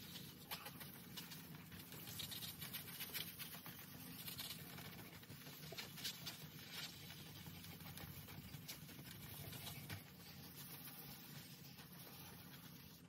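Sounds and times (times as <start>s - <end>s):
sandpaper scratching strokes: 9.4s - 13.0s.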